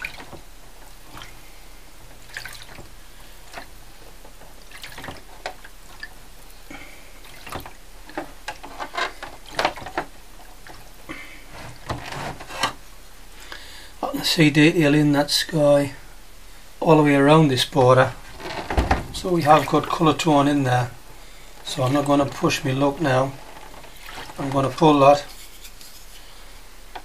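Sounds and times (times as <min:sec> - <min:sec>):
liquid sloshing and dripping in tray: 0:00.0 - 0:01.5, 0:02.1 - 0:06.6, 0:07.2 - 0:10.9.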